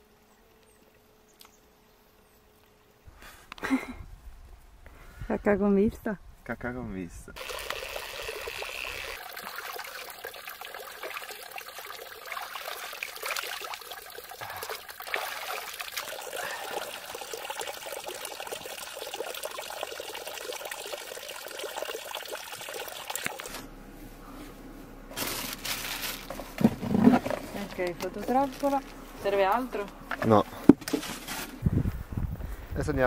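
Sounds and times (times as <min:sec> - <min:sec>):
water trickling and splashing: 0:07.4 - 0:23.6
low hum: 0:23.4 - 0:32.7.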